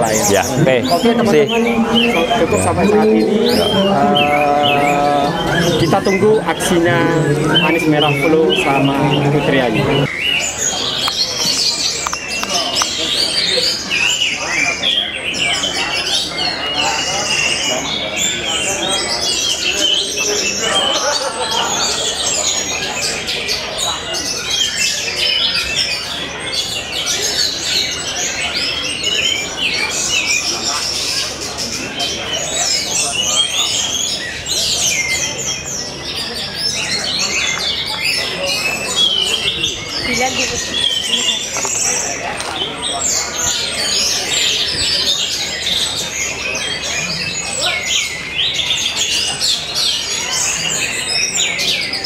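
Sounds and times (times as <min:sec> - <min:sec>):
thrushes singing: 0:00.0 - 0:23.6
songbirds chirping and trilling: 0:00.0 - 0:52.0.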